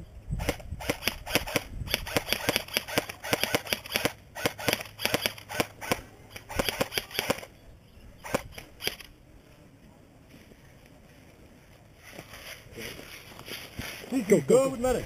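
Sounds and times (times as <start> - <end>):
airsoft rifles firing: 0.4 - 7.5.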